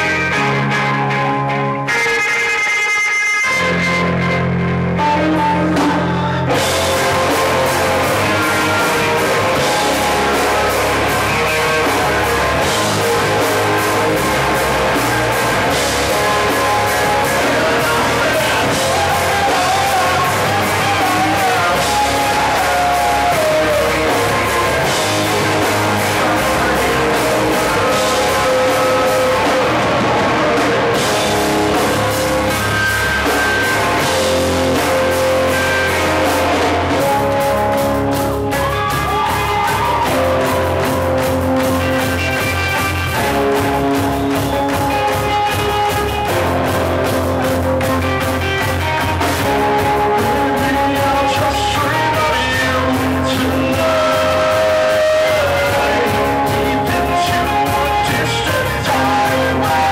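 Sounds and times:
distorted electric guitars and bass: 0:00.0 - 0:59.9
drum kit: 0:01.9 - 0:59.9
person singing: 0:05.0 - 0:59.9.

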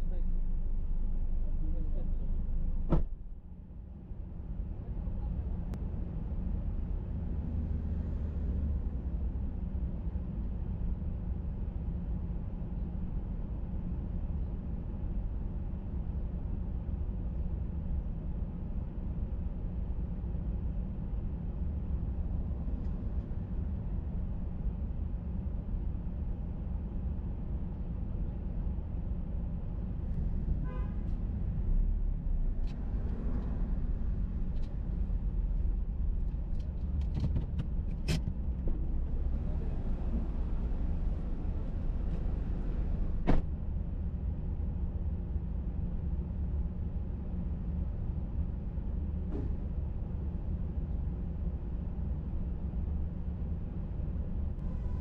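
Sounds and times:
sharp thump: 0:02.9 - 0:03.2, 0:43.2 - 0:43.5
car engine rumbling: 0:29.0 - 0:44.7, 0:51.9 - 0:55.0.

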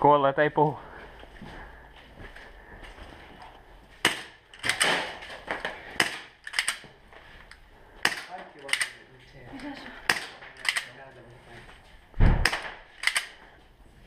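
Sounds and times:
airsoft gun shots: 0:04.0 - 0:05.2, 0:12.2 - 0:13.2.

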